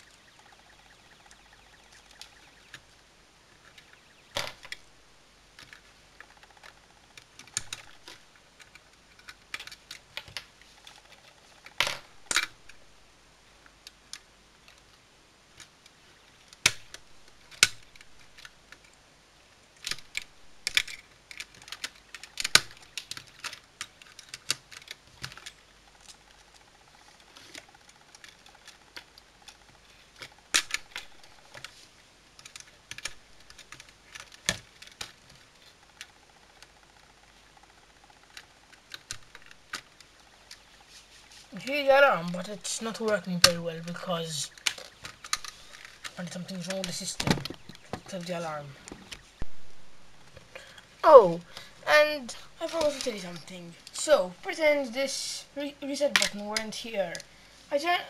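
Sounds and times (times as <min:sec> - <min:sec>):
plastic circuit pieces clicking: 0:05.6 - 0:12.8, 0:15.6 - 0:19.0, 0:19.8 - 0:31.7, 0:32.4 - 0:36.8, 0:42.2 - 0:48.2.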